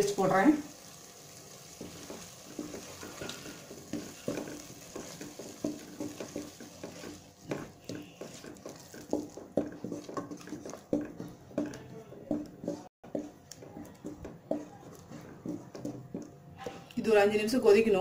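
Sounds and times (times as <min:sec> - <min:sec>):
light sizzle: 0:00.0 - 0:11.8
wooden spatula scraping a pan: 0:01.6 - 0:16.9.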